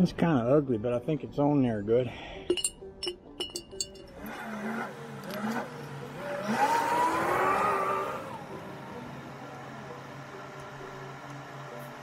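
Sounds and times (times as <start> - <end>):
vehicle engine accelerating: 4.0 - 12.0.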